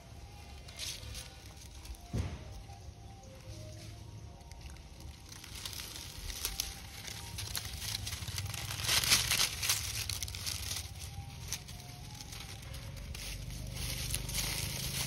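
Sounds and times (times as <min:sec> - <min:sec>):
dry leaves crunching underfoot: 0:00.0 - 0:15.0.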